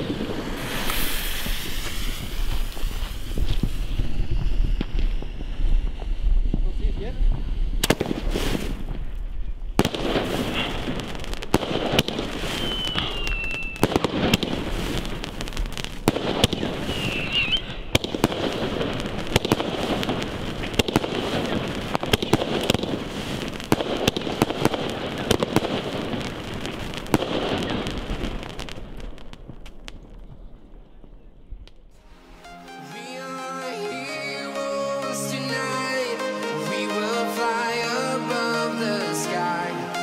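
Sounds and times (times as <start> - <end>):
firework launch bangs: 0.0 - 31.2
firework crackling: 0.0 - 40.0.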